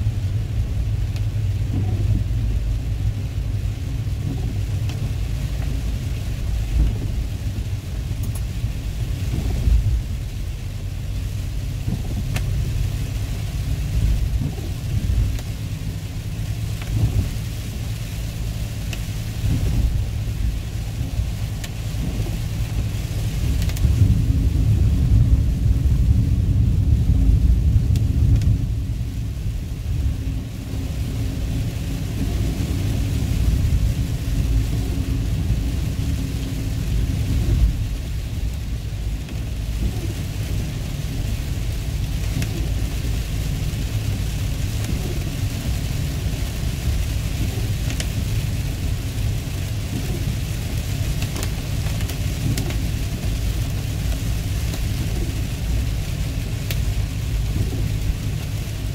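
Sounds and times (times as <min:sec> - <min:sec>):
car driving on wet road: 0:00.0 - 0:58.9
rain on car roof: 0:00.0 - 0:58.9
raindrops ticking: 0:00.0 - 0:58.9.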